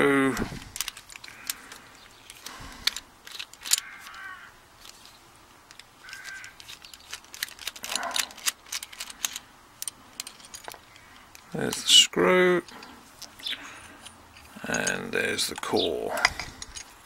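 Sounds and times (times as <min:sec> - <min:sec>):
screwdriver clicks and scrapes: 0:02.2 - 0:05.1, 0:05.7 - 0:11.8, 0:12.6 - 0:17.0.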